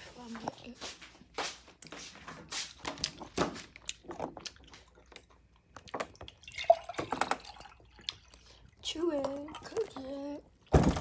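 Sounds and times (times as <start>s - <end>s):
food being chewed: 1.7s - 6.5s, 7.4s - 8.8s.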